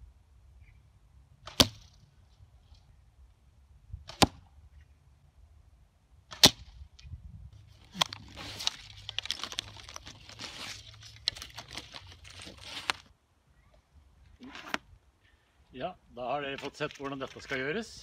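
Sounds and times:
arrows striking target: 1.4s - 2.0s, 4.0s - 4.5s, 6.3s - 6.8s.

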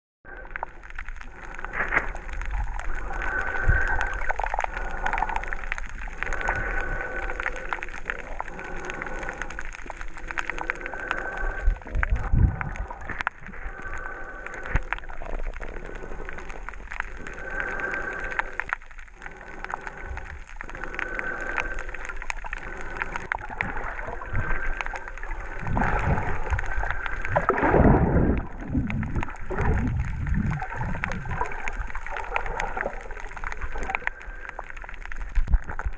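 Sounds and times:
underwater bubbling and gurgling: 0.2s - 35.9s
faint crackles: 0.3s - 35.9s
rumbling burst of bubbles: 10.9s - 13.8s, 23.4s - 34.5s.

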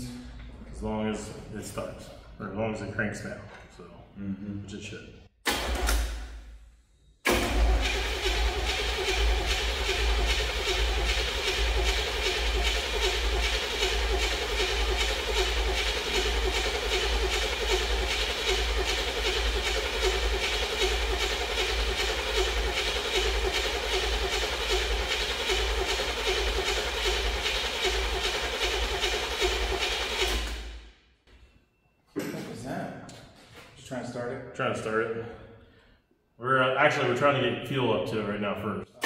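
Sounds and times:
starter motor cranking engine: 7.3s - 30.8s.

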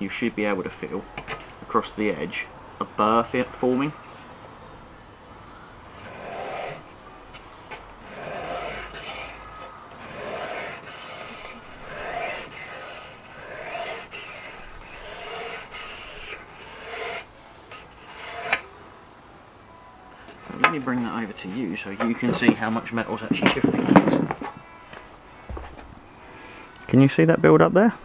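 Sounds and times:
whetstone rasping on knife: 6.0s - 18.7s.

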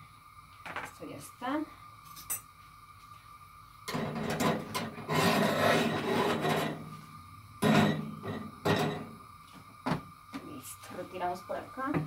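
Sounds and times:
metal spoon scraping: 3.9s - 6.8s.

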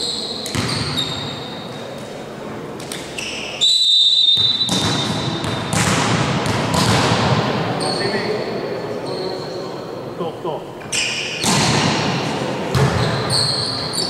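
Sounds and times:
shoe squeaks on court floor: 0.0s - 1.9s, 2.9s - 5.8s, 7.8s - 8.3s, 8.9s - 9.6s, 10.9s - 11.5s, 12.9s - 14.0s
high whistle: 3.2s - 5.2s.

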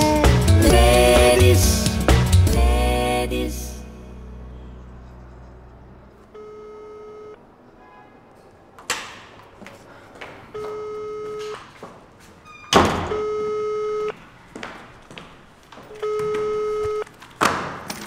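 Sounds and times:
electronic telephone ringing: 6.3s - 7.4s, 10.6s - 11.6s, 13.1s - 14.1s, 16.0s - 17.1s.

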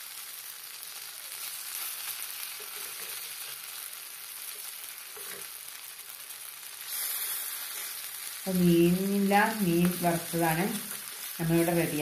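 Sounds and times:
plantain slices sizzling in oil: 0.0s - 12.0s
metal spatula stirring: 2.6s - 3.6s.

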